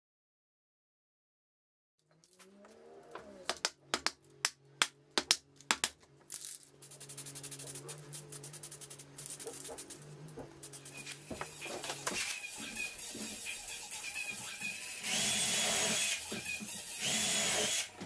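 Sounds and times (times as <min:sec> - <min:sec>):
spray can ball rattling: 0:06.3 - 0:10.0
spray can hissing: 0:06.8 - 0:10.0.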